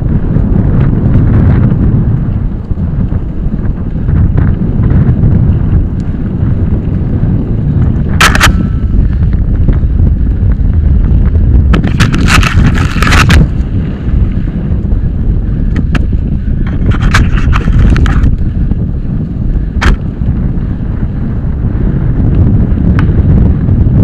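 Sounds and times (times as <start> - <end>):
bike rumbling over dirt trail: 0.0 - 24.0
wind buffeting microphone: 0.0 - 24.0
sharp clack: 8.1 - 9.0
small rattles: 11.8 - 13.7.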